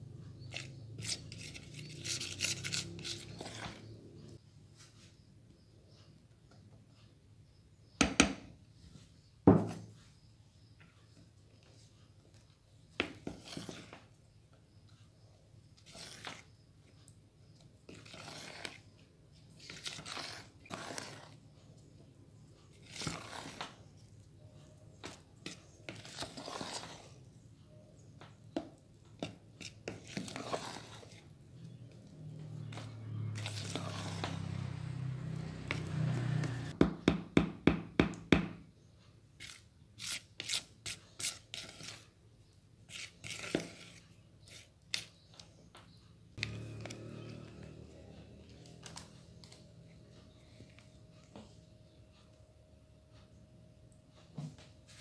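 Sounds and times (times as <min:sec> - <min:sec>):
spatula scraping batter in bowl: 0:00.3 - 0:04.4, 0:11.6 - 0:36.8, 0:39.3 - 0:52.0.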